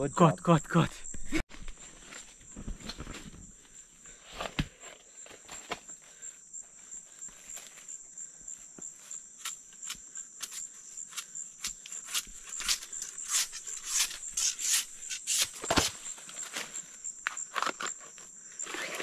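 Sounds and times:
high insect trill: 0.0s - 19.0s
palm sheaths tearing by hand: 9.4s - 16.1s.

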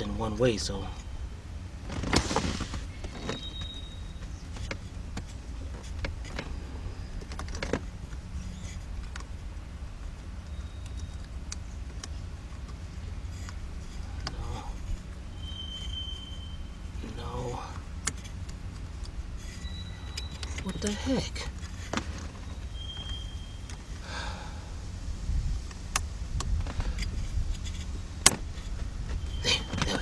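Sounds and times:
rustle: 0.0s - 30.0s
low rumble: 21.5s - 30.0s.

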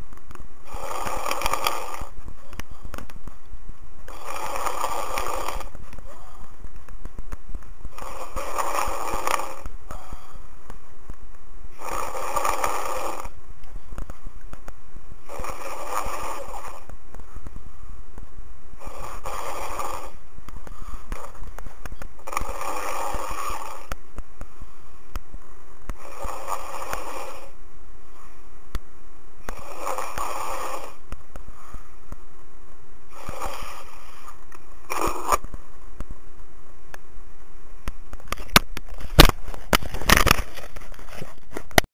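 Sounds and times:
person snoring heavily: 0.6s - 3.0s, 4.1s - 6.6s, 7.9s - 10.6s, 11.7s - 13.4s, 15.2s - 17.0s, 18.8s - 21.6s, 22.2s - 24.0s, 25.9s - 27.6s, 29.4s - 31.1s, 33.1s - 35.5s
sharp clicks: 19.3s - 27.3s.

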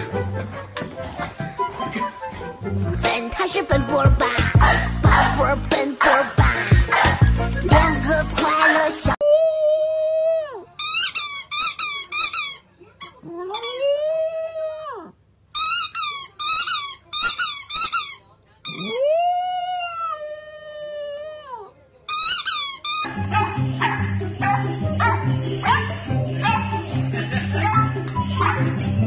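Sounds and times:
squeaky toy squeaks: 10.8s - 13.8s, 15.6s - 19.0s, 22.1s - 23.1s
squeaky toy long squeals: 10.8s - 14.0s, 15.6s - 19.0s, 22.1s - 23.1s.

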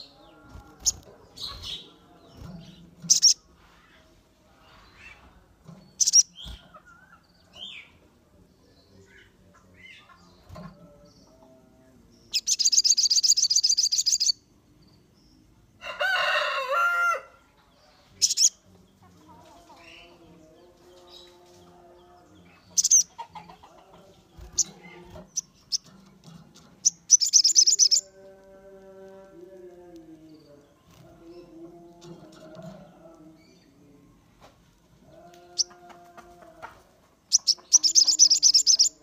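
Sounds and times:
songbird trill: 0.0s - 36.6s, 37.2s - 39.0s
sharp bird chirps: 3.0s - 3.4s, 5.9s - 6.6s, 12.3s - 14.4s, 18.2s - 18.6s, 26.8s - 28.1s, 37.3s - 39.0s.

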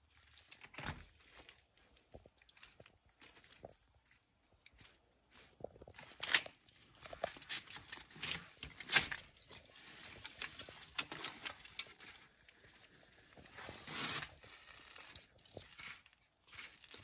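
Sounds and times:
lizards feeding wet clicks: 0.1s - 17.0s.

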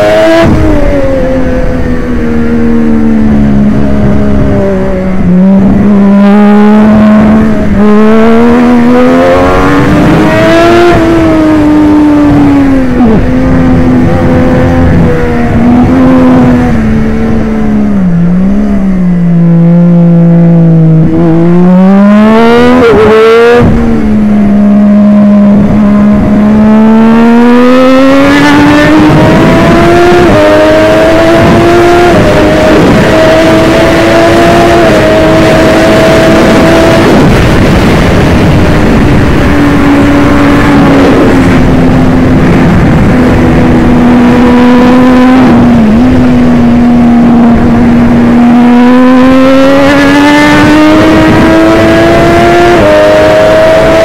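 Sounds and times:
motorcycle engine at racing speed: 0.0s - 54.0s
wind rush: 0.0s - 54.0s.

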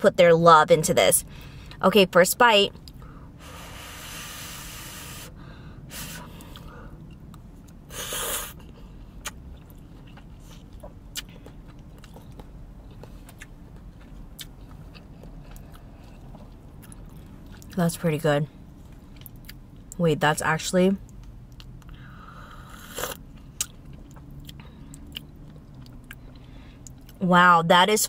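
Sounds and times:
chewing with mouth clicks: 6.3s - 17.8s, 18.8s - 20.0s, 21.0s - 22.0s, 22.7s - 27.2s.

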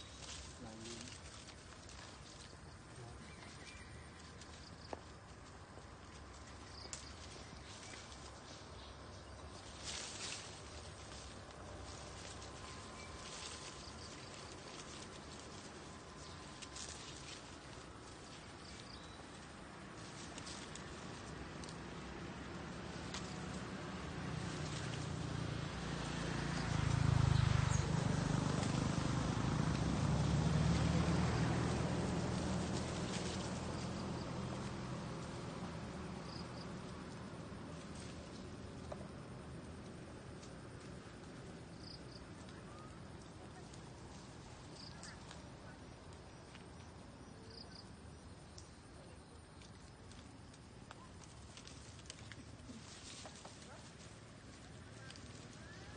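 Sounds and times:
low engine rumble: 0.0s - 55.9s.

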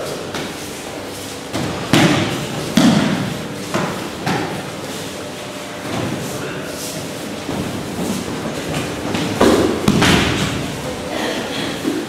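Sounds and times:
bodies thudding on mats: 7.4s - 10.8s.

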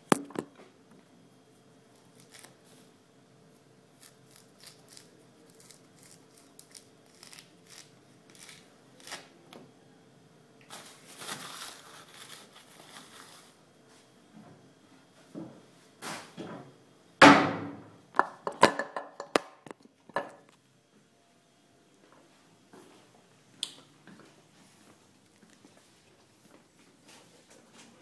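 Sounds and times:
fruit rind tearing: 1.9s - 2.6s, 4.0s - 9.3s
tissue paper rustling: 10.7s - 13.6s.

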